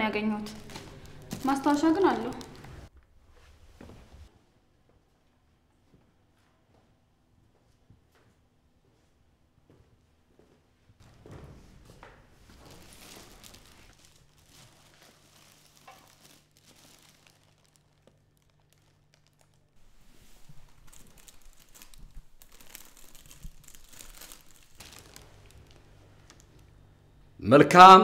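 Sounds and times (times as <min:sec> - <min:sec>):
foil wrapping paper crinkling: 0:00.4 - 0:02.9, 0:12.5 - 0:26.7.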